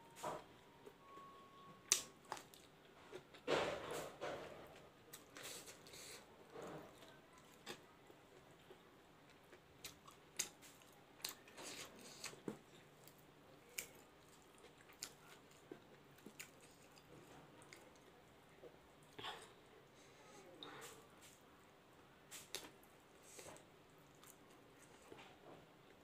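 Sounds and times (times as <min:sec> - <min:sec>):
chewing smacks: 0:09.8 - 0:18.1.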